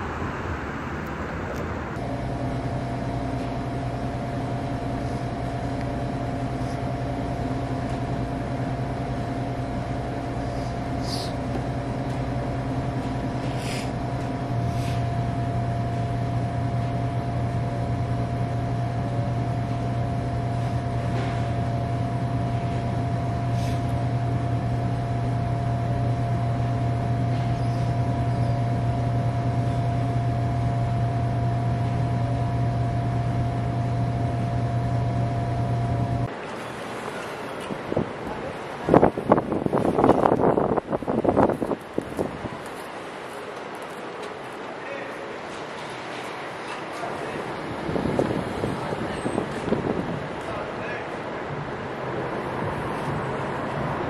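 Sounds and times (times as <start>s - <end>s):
low hum: 0.0s - 37.2s.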